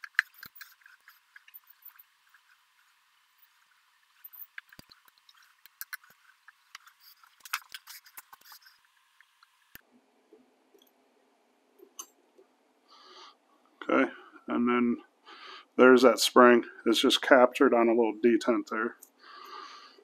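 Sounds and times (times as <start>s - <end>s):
screwdriver being handled: 0.0s - 2.5s, 4.2s - 8.7s.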